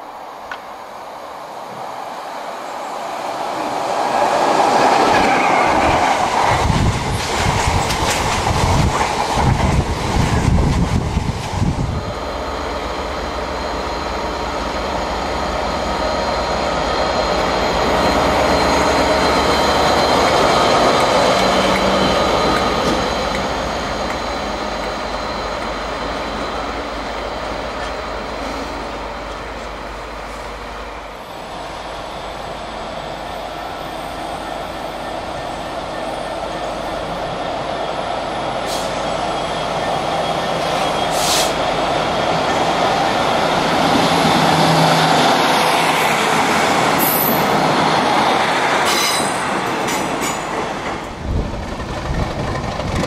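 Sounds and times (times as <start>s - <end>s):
diesel locomotive engine drone: 0.0s - 53.0s
train wheels clattering over rail joints: 48.8s - 53.0s.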